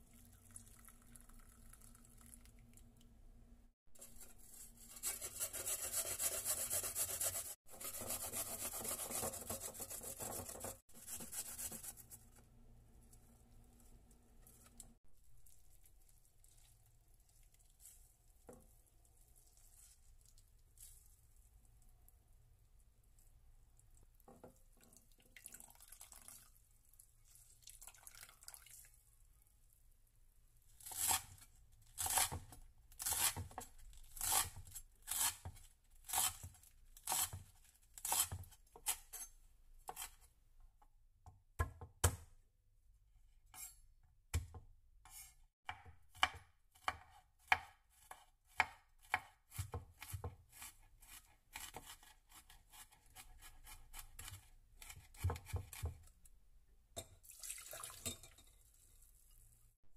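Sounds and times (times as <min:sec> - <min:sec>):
faint wet squishing: 0:12.3 - 0:29.8
knife chopping on wooden board: 0:45.7 - 0:50.4, 0:54.2 - 0:56.0.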